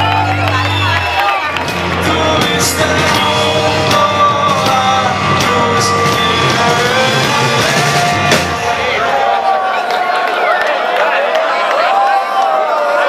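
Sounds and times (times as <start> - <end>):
electric bass: 0.0 - 9.1
drums and cymbal hits: 1.5 - 9.4.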